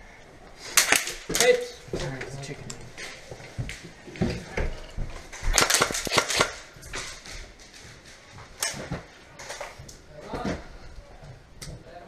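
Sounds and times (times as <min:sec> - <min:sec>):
airsoft gun shots: 0:05.5 - 0:06.6.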